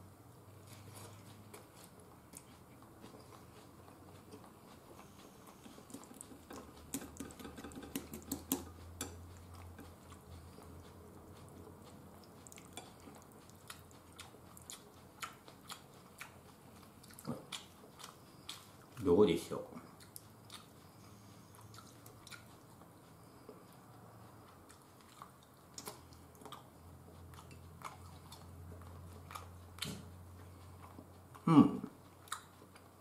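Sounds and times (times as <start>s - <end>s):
person chewing food: 0.0s - 33.0s
chopsticks clicking on a bowl: 5.9s - 9.2s.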